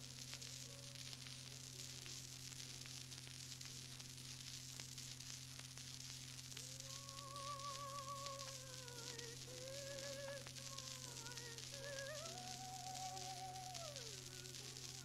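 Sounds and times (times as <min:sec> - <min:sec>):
radio recording hiss and crackle: 0:00.0 - 0:15.0
steady low hum: 0:05.1 - 0:15.0.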